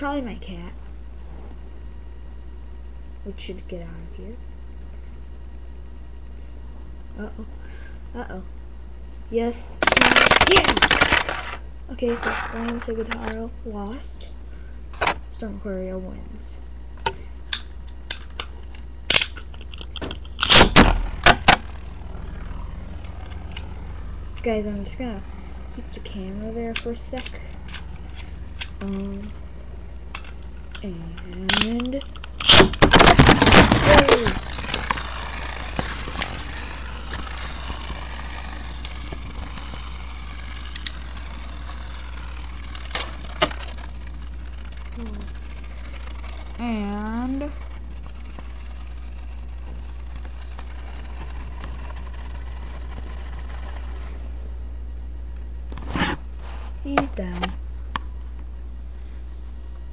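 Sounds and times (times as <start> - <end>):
plastic spinning tops clicking: 9.8 - 13.3, 30.1 - 54.1
rasping launcher burst: 20.3 - 30.8, 32.3 - 54.2.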